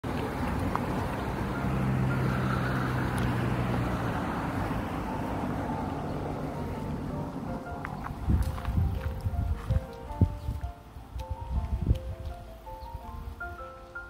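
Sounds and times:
vehicle engine drone passing: 0.0s - 9.3s
outdoor background noise: 0.0s - 14.0s.

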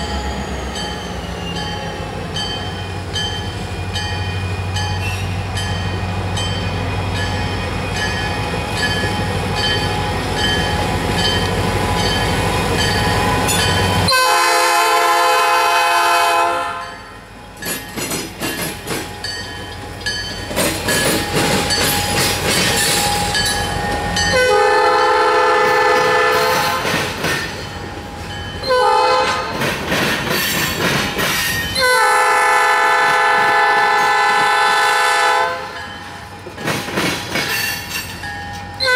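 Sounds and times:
diesel locomotive engine running: 0.0s - 37.5s
train horn blasts: 14.0s - 17.2s, 24.3s - 27.0s, 28.6s - 29.6s, 31.8s - 35.8s.

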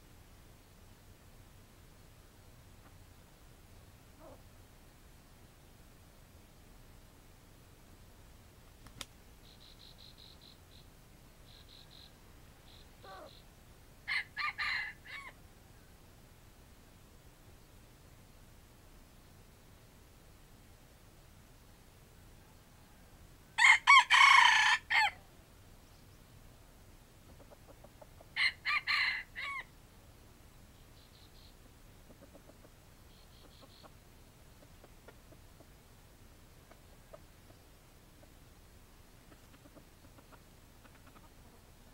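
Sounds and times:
faint insect chirping: 0.1s - 14.1s, 25.3s - 28.4s, 29.6s - 41.9s
sharp click: 8.8s - 9.2s
faint high chirps: 9.4s - 13.6s, 30.5s - 31.7s, 32.6s - 34.6s
rooster crowing: 14.1s - 15.4s, 23.6s - 25.2s, 28.4s - 29.7s.

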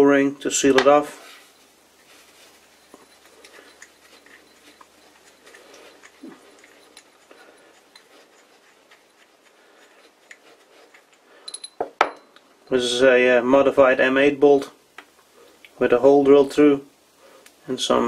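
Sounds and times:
fingers rubbing metal: 1.6s - 11.2s.

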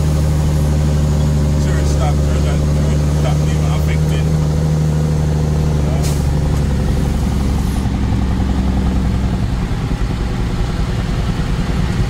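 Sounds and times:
car engine droning: 0.0s - 12.0s
road noise: 0.0s - 12.0s.

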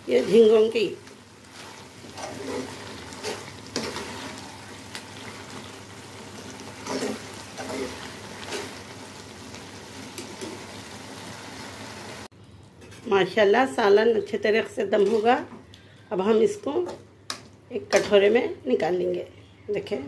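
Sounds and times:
curry sizzling: 0.0s - 12.3s
ladle scraping metal pan: 1.5s - 4.5s, 6.8s - 8.8s.

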